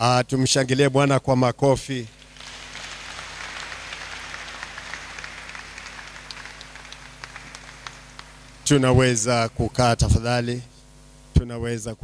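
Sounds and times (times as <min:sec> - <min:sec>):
crowd applauding: 0:02.1 - 0:09.2.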